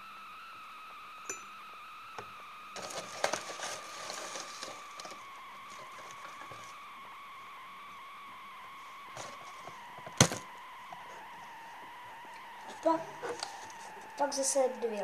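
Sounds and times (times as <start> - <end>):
high-pitched whine: 0.0 - 15.0
cardboard box rustling and clicking: 2.8 - 6.7.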